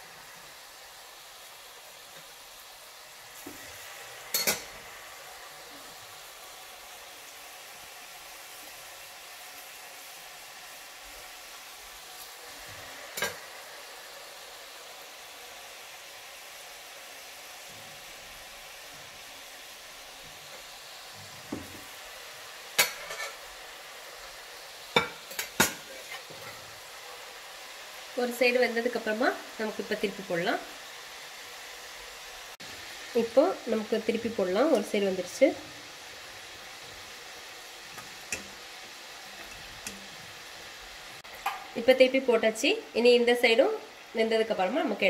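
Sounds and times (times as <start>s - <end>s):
dough sizzling in hot oil: 0.0s - 45.0s
utensil clinking on cookware: 4.3s - 4.7s, 22.8s - 23.4s, 25.0s - 26.5s.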